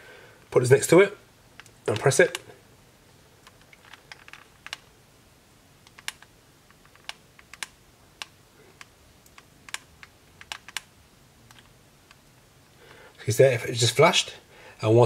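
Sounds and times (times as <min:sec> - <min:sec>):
remote control buttons clicking: 0:01.6 - 0:02.5, 0:05.8 - 0:10.9, 0:11.5 - 0:12.3.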